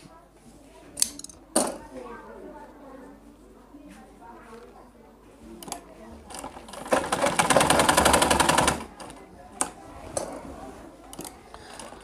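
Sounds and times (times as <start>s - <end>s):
sewing machine stitching: 6.3s - 9.1s.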